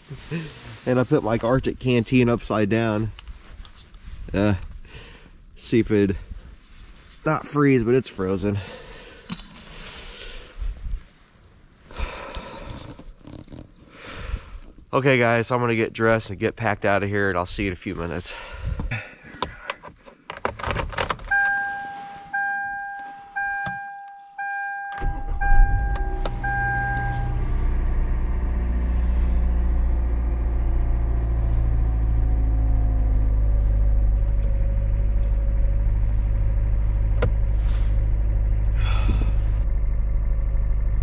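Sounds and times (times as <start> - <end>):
car engine cranking and idling: 0.1 - 13.9, 19.4 - 41.0
dashboard chime dinging: 21.3 - 27.4.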